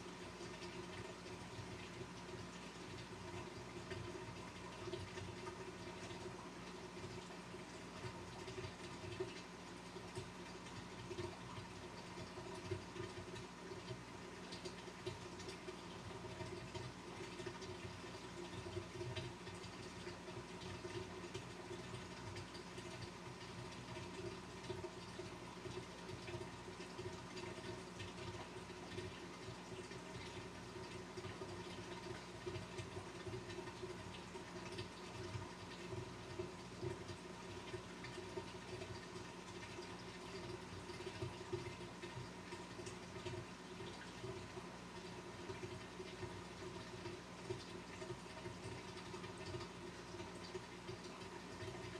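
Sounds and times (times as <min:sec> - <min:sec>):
aquarium pump humming: 0:00.0 - 0:51.9
water trickling: 0:00.0 - 0:51.9.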